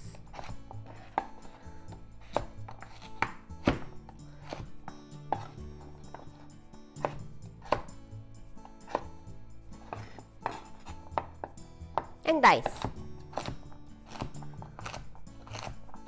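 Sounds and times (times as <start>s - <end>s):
background music: 0.0s - 16.0s
knife striking cutting board: 2.2s - 6.4s, 7.0s - 8.0s, 8.6s - 9.2s, 9.8s - 16.0s.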